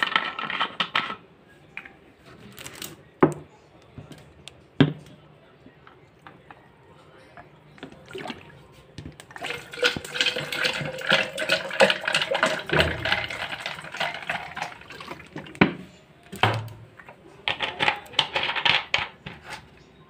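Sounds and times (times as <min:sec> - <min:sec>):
soda fizzing over ice: 0:09.4 - 0:15.4.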